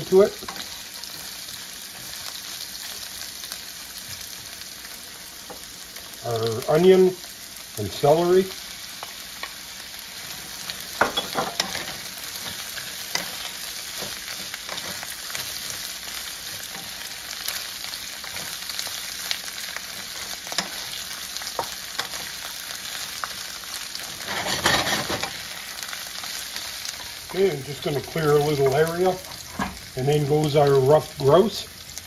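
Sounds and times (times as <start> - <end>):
vegetables sizzling in oil: 0.0 - 32.0
spatula scraping pan: 24.0 - 25.5.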